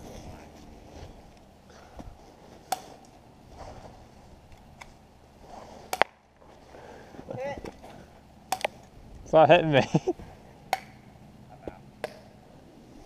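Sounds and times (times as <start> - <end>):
airsoft gun snaps: 8.5 - 8.7.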